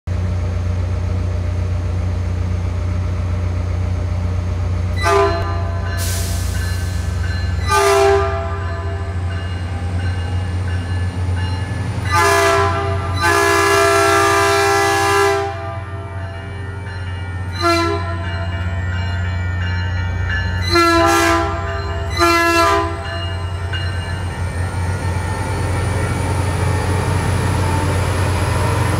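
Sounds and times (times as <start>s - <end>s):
idling train rumble: 0.1s - 28.9s
locomotive air horn blasts: 5.0s - 6.5s, 7.6s - 9.2s, 12.1s - 16.2s, 17.5s - 18.4s, 20.6s - 23.2s.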